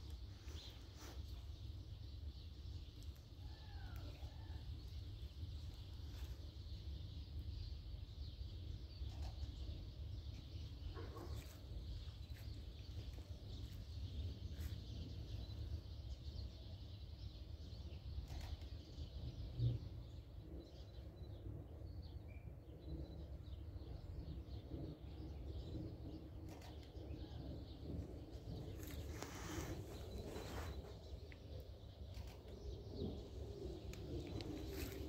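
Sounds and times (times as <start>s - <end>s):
steady low rumble: 22.8s - 35.0s.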